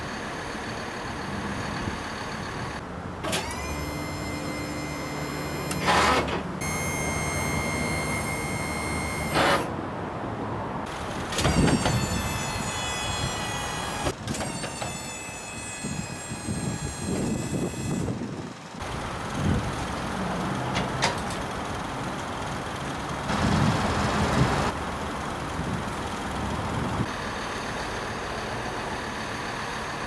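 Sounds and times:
motor-driven jacks whining: 3.2 - 9.7, 11.3 - 18.2.

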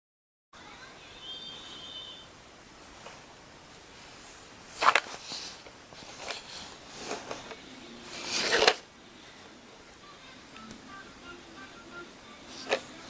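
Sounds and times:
snack cup rustling and scraping: 4.8 - 8.8.

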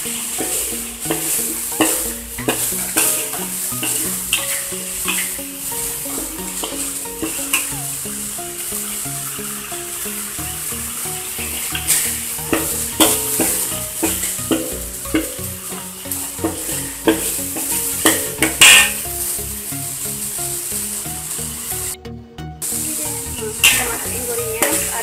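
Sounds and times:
metal spatula scraping wok: 0.0 - 21.6, 22.7 - 25.0
paste sizzling in oil: 0.0 - 22.0, 22.6 - 25.0
spatula clinking against wok: 0.3 - 7.9, 11.5 - 19.2, 24.6 - 25.0.

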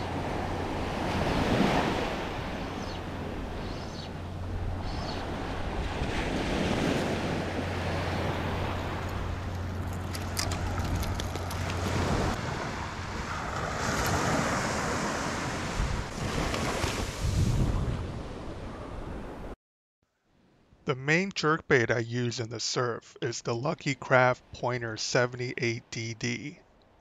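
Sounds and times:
ocean surf breaking: 0.0 - 19.5
wind buffeting microphone: 0.2 - 19.5.

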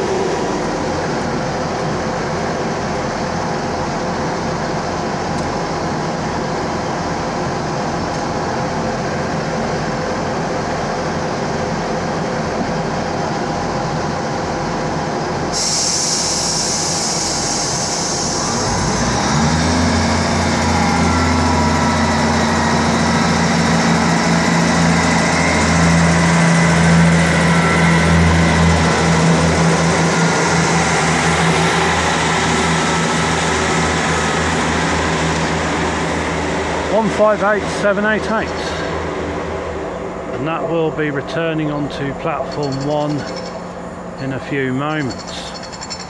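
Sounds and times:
diesel train engine: 0.0 - 46.0
hiss of air: 15.5 - 19.2.

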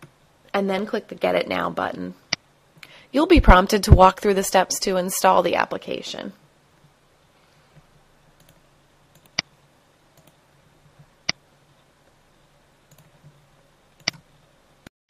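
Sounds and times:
faint steady hum: 0.0 - 14.9.

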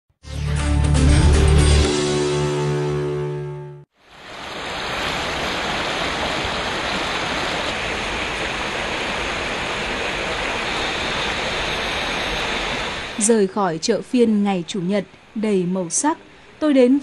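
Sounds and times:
theme music: 0.2 - 3.9
fast-flowing stream rushing: 4.0 - 13.4.

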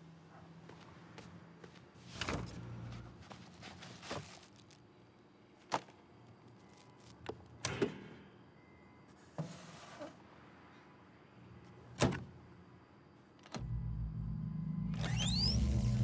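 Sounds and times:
refrigerator hum: 13.2 - 16.0.

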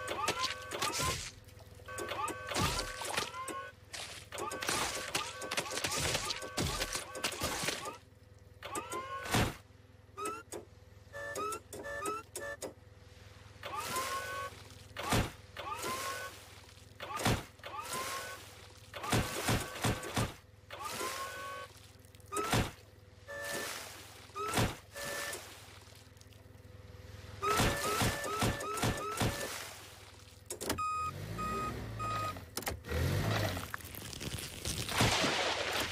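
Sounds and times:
forklift motor whine: 0.0 - 25.7, 26.4 - 29.8, 30.5 - 33.8
engine hum: 0.0 - 35.9
reversing beeps: 1.9 - 3.8, 10.2 - 12.7, 23.3 - 23.8, 27.4 - 29.6, 30.7 - 32.4.

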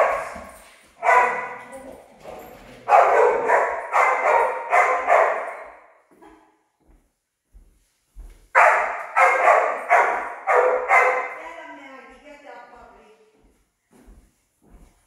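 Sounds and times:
dog barking: 0.0 - 1.8, 2.8 - 6.0, 8.6 - 11.4.

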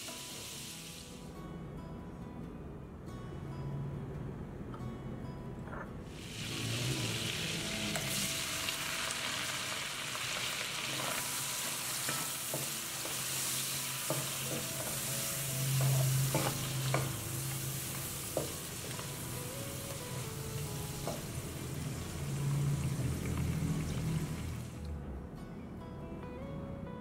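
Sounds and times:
chicken sizzling in pan: 6.1 - 24.7.

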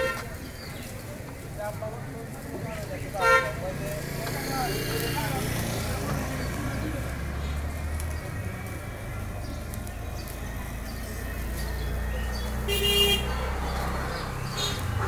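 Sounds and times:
vehicle horn toot: 0.0 - 0.3, 3.2 - 3.6, 12.7 - 13.4
engine rumble: 0.0 - 15.0.

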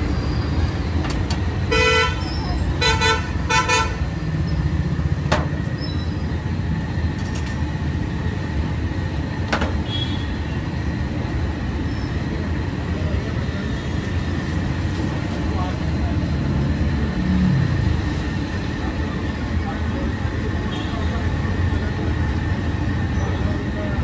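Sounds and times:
street traffic rumble: 0.0 - 24.0
vehicle horn tooting: 1.7 - 4.0, 9.8 - 10.5.

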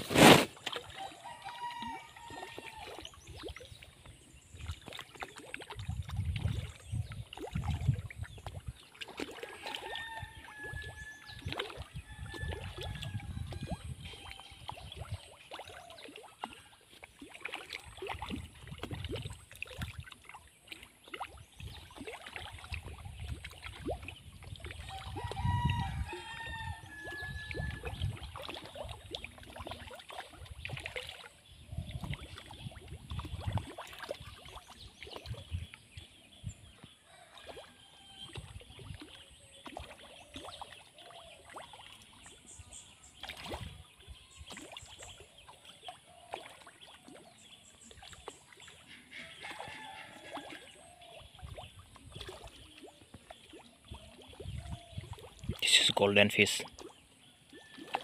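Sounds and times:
pond water gurgling: 0.0 - 58.0
small splashes of fish: 0.0 - 58.0.

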